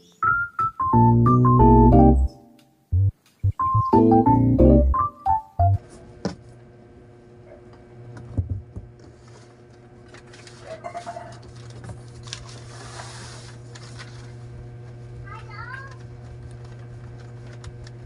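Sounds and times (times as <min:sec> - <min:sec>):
electronic keyboard music: 0:00.0 - 0:05.8
steady low hum: 0:01.9 - 0:10.1
paper rustling and crinkling: 0:09.1 - 0:14.4.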